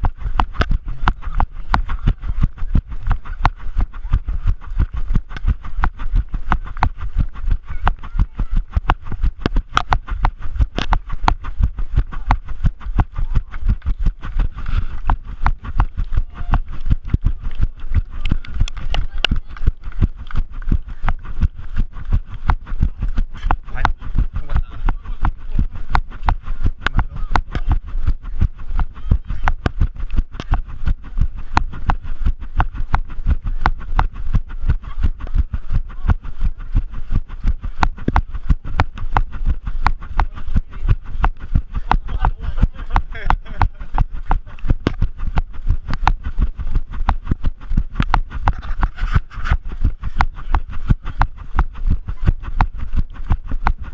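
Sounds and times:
running footsteps thudding: 0:00.0 - 0:53.9.

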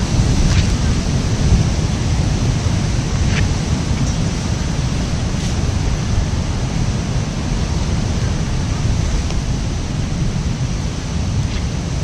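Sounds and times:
surf breaking on rocks: 0:00.0 - 0:12.0
wind buffeting microphone: 0:00.0 - 0:12.0.

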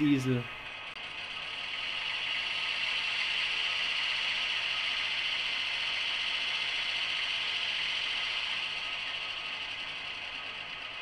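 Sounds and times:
high even hiss from small loudspeaker: 0:00.0 - 0:00.6.

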